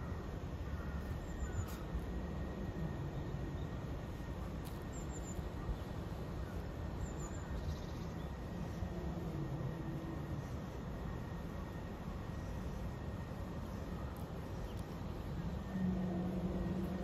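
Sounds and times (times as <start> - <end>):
faint bird chirps: 0.0 - 9.1
low outdoor background rumble: 0.0 - 17.0.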